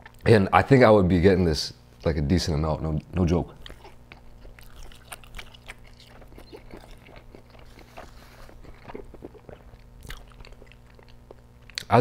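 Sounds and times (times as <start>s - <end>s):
faint low hum: 0.0s - 12.0s
mouth chewing wet smacks: 3.0s - 11.9s.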